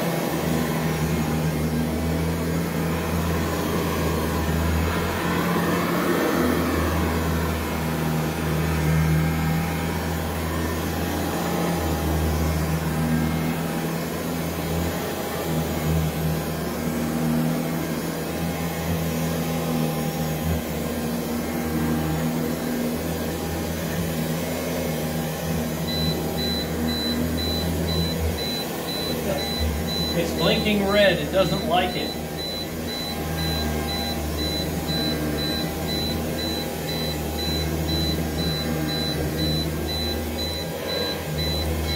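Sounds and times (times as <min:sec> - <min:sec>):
vacuum cleaner motor running: 0:00.0 - 0:41.9
short high alarm beeps: 0:25.9 - 0:41.9.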